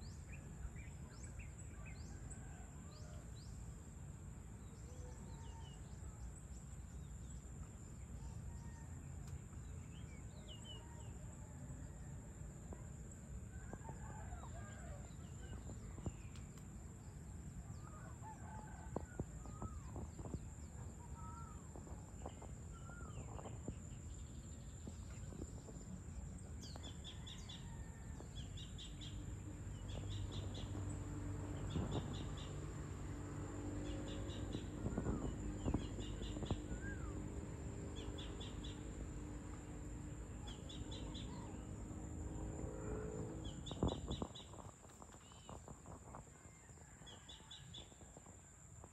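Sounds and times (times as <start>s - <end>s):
birds chirping: 33.8s - 39.6s, 42.7s - 45.9s.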